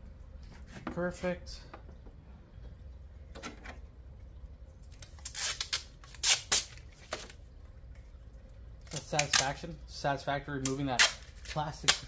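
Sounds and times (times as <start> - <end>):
plastic film peeling crackle: 4.9 - 7.4.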